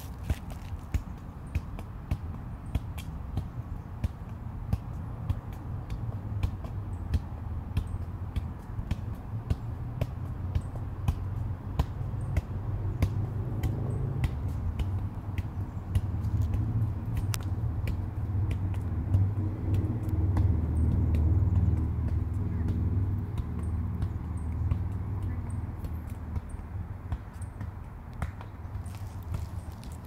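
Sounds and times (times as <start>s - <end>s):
foot tapping soccer ball: 0.0s - 30.0s.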